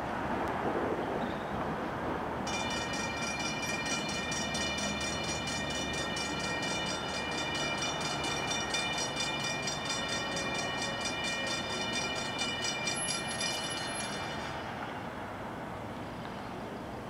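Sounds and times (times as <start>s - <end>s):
railroad crossing bell dinging: 2.5s - 15.8s.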